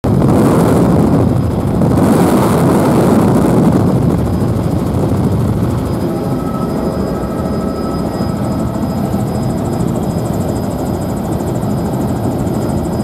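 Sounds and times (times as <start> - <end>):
helicopter engine and rotor din: 0.1 - 13.0.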